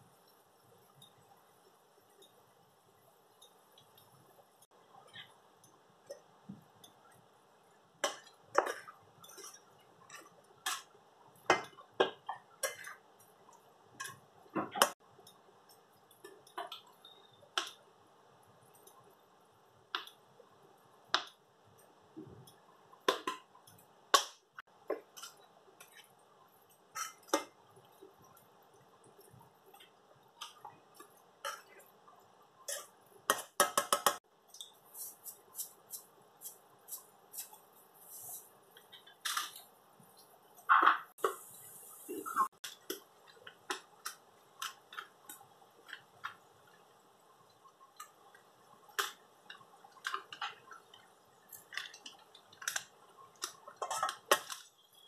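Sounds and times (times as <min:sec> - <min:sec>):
faint steady hiss: 0:00.0 - 0:55.0
spoon scraping metal pot: 0:26.9 - 0:27.4.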